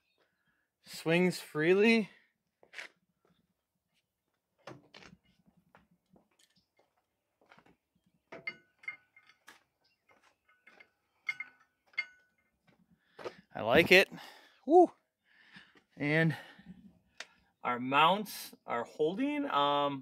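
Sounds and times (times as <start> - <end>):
metallic clicks and clunks: 8.3 - 12.6.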